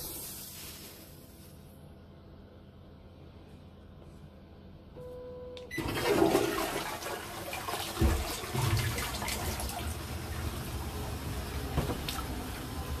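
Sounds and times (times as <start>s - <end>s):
toilet water rushing: 5.7s - 13.0s.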